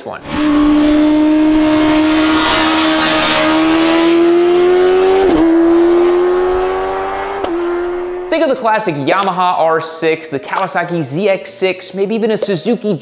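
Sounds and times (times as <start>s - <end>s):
motorcycle engine screaming at high revs: 0.2s - 8.3s.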